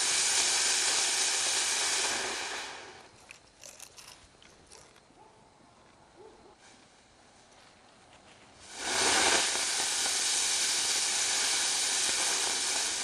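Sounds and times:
firework hissing: 0.0 - 3.2, 8.5 - 13.0.

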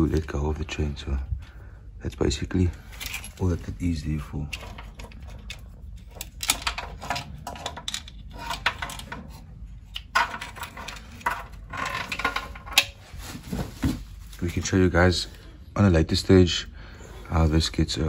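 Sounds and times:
metal tools clinking and rattling: 2.7 - 9.4, 10.0 - 13.0.

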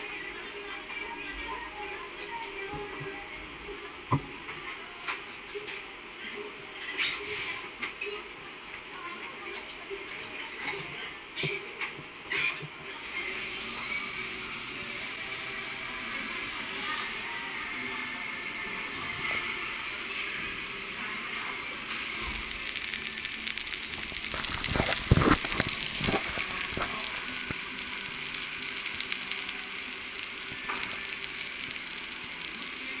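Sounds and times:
meat sizzling on hot platter: 12.9 - 33.0.

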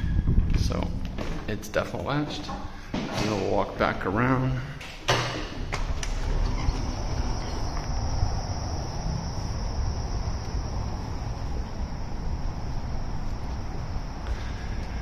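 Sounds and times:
insect chorus buzzing: 4.2 - 15.0
low rumble: 5.6 - 15.0.

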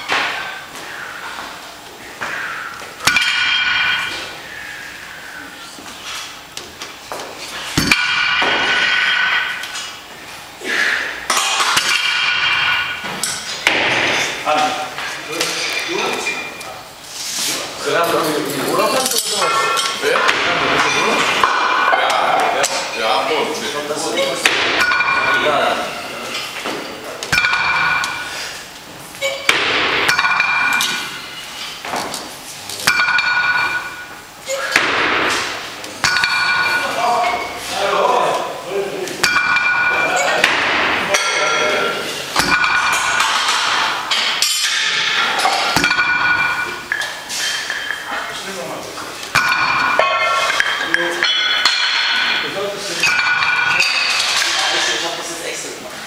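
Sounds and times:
iron weight plates clanking: 2.3 - 5.4, 7.6 - 10.0, 10.7 - 14.8, 18.0 - 32.1, 32.8 - 38.2, 39.2 - 48.5, 49.3 - 55.2.

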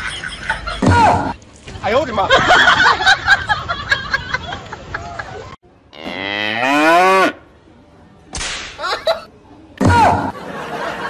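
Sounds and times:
voices and laughter: 0.0 - 1.4, 2.1 - 5.6, 10.0 - 11.0
cow mooing: 5.9 - 7.4.

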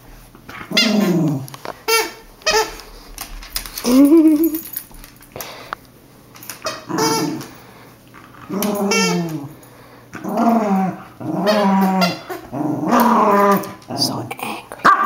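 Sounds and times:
dog growling: 0.6 - 1.5, 6.9 - 7.5, 8.3 - 9.6, 10.2 - 15.0.

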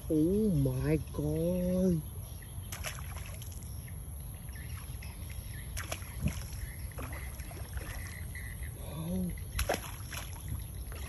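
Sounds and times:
fish splashing in water: 2.7 - 3.8, 4.6 - 11.0.

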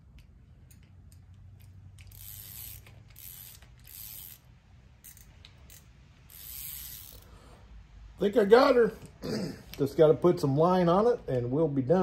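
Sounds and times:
fishing reel ratchet clicking: 0.2 - 7.3.

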